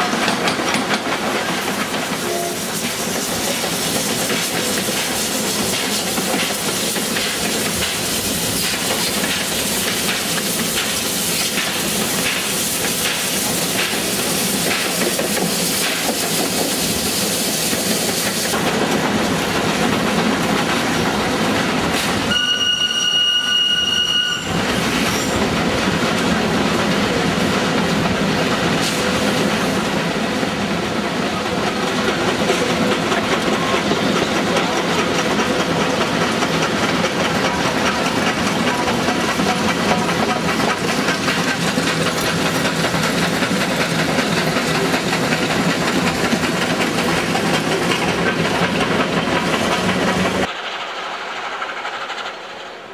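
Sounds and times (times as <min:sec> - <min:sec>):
train rumbling on rails: 0:00.0 - 0:52.9
steam whistle: 0:02.2 - 0:02.7, 0:22.3 - 0:24.6.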